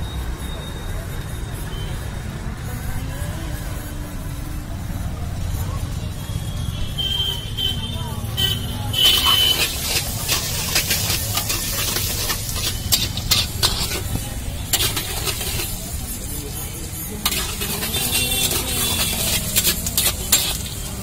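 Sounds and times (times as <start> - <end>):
oil sizzling: 8.9 - 21.0
metal spatula scraping iron pan: 9.0 - 16.2, 17.2 - 21.0.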